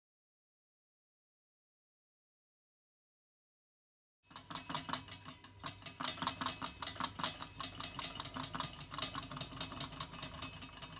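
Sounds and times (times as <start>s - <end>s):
kettle rattling metallic clicks: 4.3s - 10.9s.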